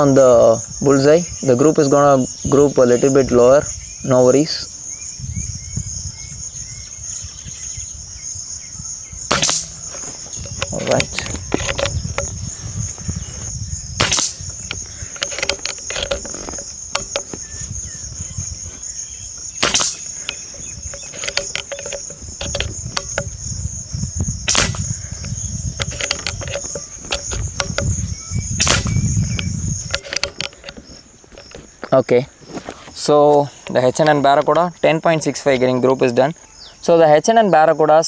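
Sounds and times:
crickets chirring: 0.0 - 38.0
air rifle shots cracking: 9.3 - 11.9, 14.0 - 17.4, 19.6 - 23.3, 24.4 - 25.1, 28.6 - 29.1.

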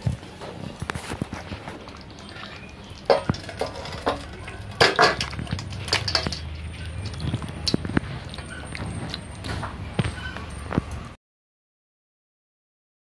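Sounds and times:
metal pan clanking on steel bowl: 2.4 - 7.0.

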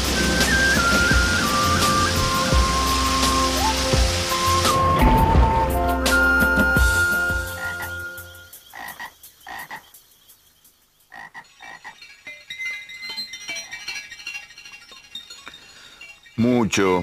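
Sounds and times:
background music with low drone: 0.0 - 8.7
frogs croaking: 7.4 - 14.4.

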